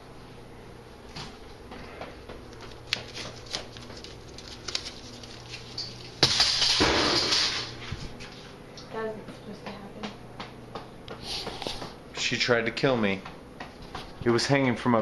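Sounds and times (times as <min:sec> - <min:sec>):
decoration crashing on tile floor: 0:06.2 - 0:07.8.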